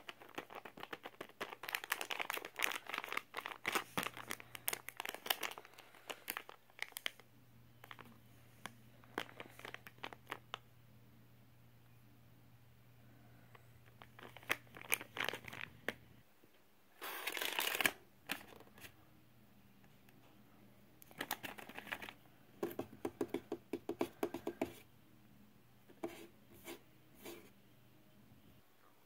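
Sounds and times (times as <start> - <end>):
plastic pouch crinkling: 0.0 - 7.2, 7.8 - 10.6, 13.8 - 16.0, 17.0 - 18.8, 21.1 - 22.2.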